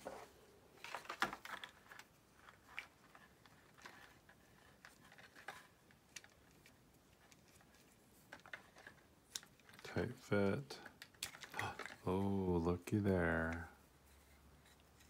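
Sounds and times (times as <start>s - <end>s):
small plastic parts clicking: 0.8s - 12.4s.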